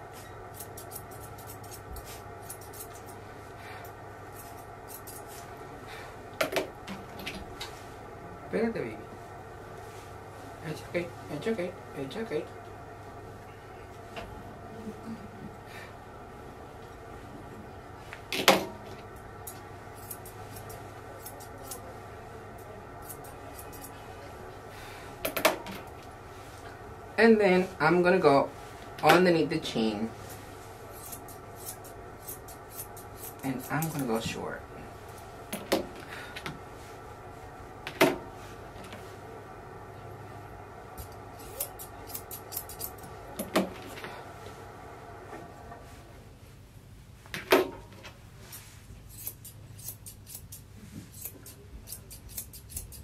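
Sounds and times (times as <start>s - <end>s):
grooming shears snipping: 0.5s - 3.2s, 19.4s - 21.9s, 30.3s - 34.3s, 41.0s - 43.5s, 49.1s - 53.0s.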